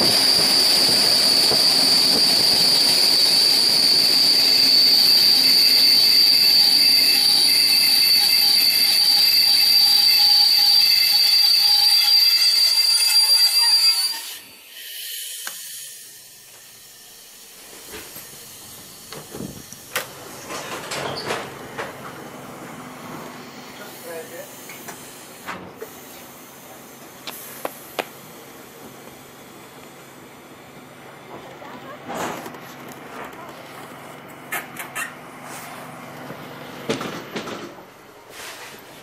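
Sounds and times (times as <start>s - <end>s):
train running noise: 0.0s - 15.6s, 16.2s - 39.0s
train brakes squealing: 0.0s - 19.8s, 23.1s - 27.9s.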